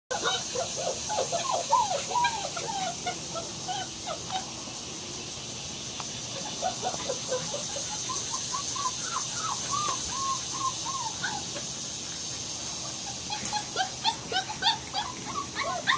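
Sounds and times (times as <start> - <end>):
puppies whimpering: 0.1 - 4.6, 6.4 - 11.7, 13.0 - 15.9.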